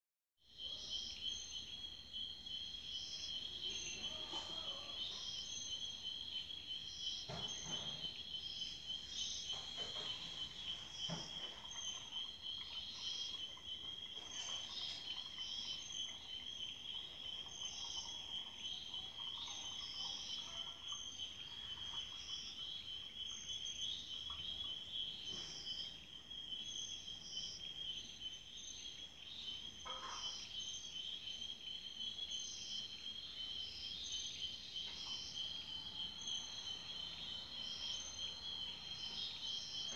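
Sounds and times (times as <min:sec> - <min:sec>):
high insect chirp: 0:00.5 - 0:39.9
insects trilling: 0:00.5 - 0:39.9
faint knocks: 0:07.2 - 0:08.2, 0:09.4 - 0:12.2.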